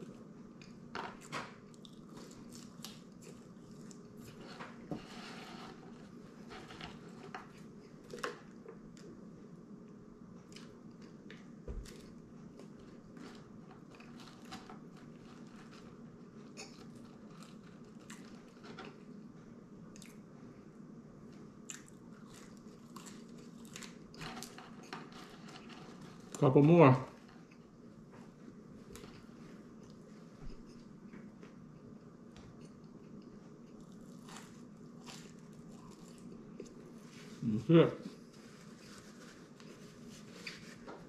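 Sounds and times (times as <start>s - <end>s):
man chewing and crunching: 0.0s - 4.6s, 9.9s - 19.2s, 19.9s - 20.2s, 21.4s - 26.4s, 31.8s - 37.1s
faint room hum: 0.0s - 41.0s.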